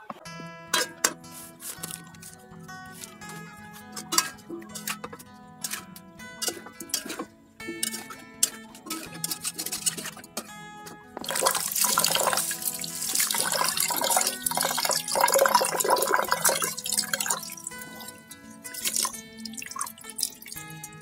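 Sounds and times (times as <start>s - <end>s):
background music: 0.0s - 21.0s
water splashing into pot: 11.2s - 21.0s.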